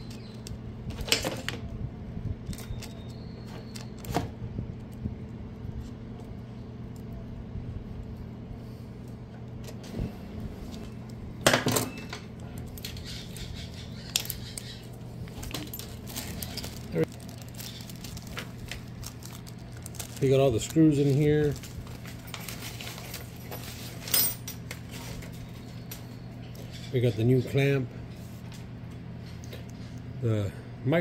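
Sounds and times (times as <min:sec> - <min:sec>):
steady low hum: 0:00.0 - 0:31.0
small metal parts clinking: 0:15.4 - 0:18.4, 0:19.2 - 0:25.2.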